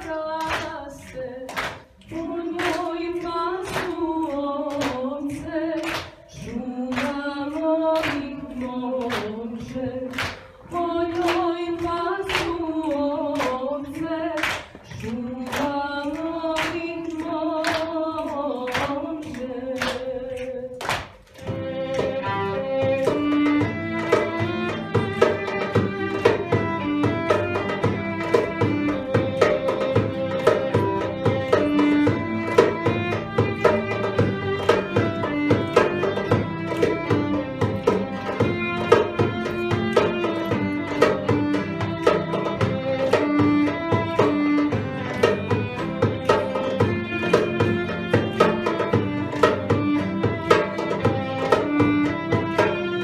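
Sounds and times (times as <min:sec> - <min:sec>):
violin: 0:00.0 - 0:53.0
frame drum beat: 0:21.4 - 0:53.0.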